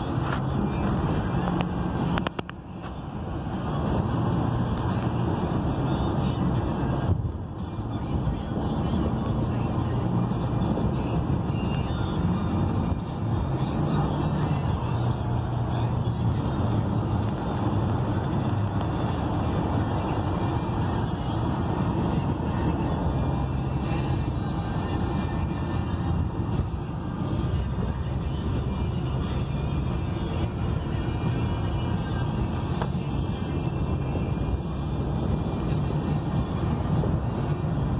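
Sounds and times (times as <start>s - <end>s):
road and engine noise in car: 0.0s - 37.9s.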